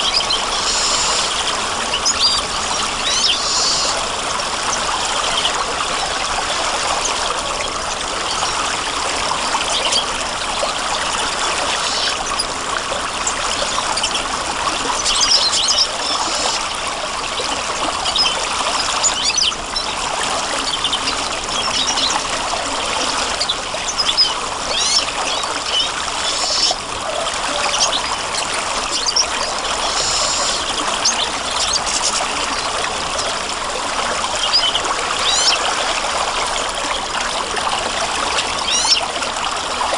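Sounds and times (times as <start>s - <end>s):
high bird chirps: 0.0s - 1.4s, 3.0s - 4.0s, 25.7s - 26.8s
stream water trickling: 0.0s - 39.9s.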